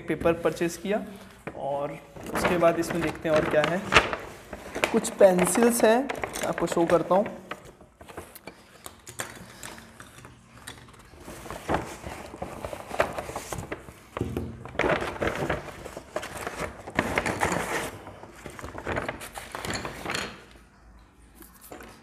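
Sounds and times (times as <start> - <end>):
paper bag rustling: 0.0 - 8.7, 10.9 - 20.5
pencils clicking on a desk: 4.8 - 11.2.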